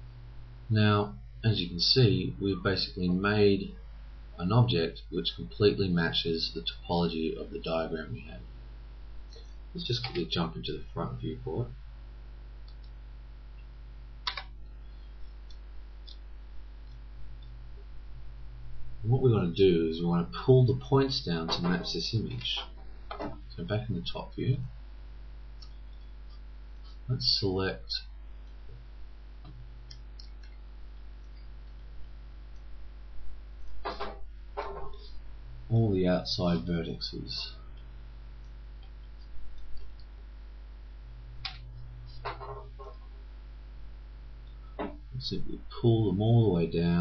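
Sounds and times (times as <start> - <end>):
low electrical hum: 0.0 - 47.0
computer mouse clicking: 14.2 - 14.5, 29.4 - 30.6.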